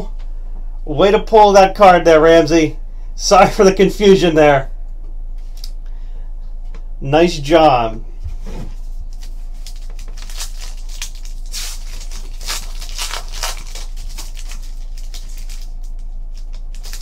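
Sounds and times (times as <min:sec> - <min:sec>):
steady low hum: 0:00.0 - 0:17.0
wrapper and cards rustling: 0:08.7 - 0:17.0
foil pack crinkling and ripping: 0:09.1 - 0:17.0.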